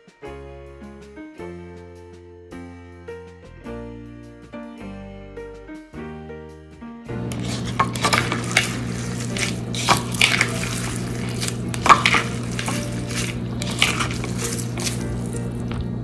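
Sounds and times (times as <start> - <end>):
wet squishing of onion: 7.3 - 16.0.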